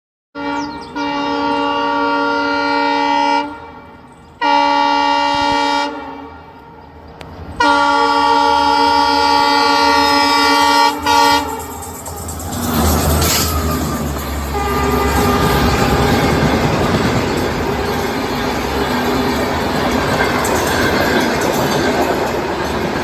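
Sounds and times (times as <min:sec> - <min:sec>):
locomotive horn blasts: 0:00.4 - 0:07.0, 0:07.6 - 0:12.0, 0:13.2 - 0:18.6.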